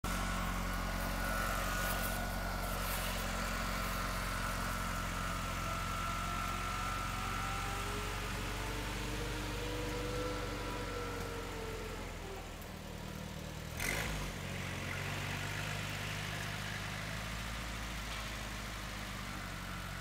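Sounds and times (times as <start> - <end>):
high whine: 0.0 - 6.9
garden tractor engine running: 0.0 - 20.0.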